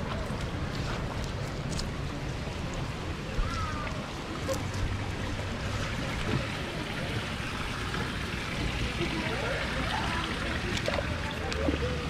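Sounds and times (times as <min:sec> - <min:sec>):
waterfall spilling into pond: 0:05.0 - 0:12.0.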